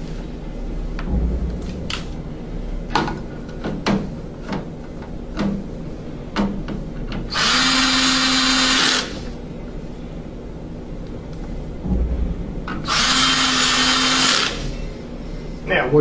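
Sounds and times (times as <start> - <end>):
cordless drill driving screw: 7.3 - 9.3, 12.9 - 14.6.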